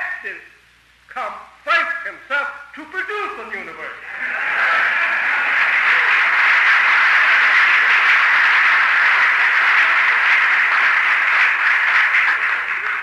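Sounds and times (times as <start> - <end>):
audience applause: 4.1 - 13.0.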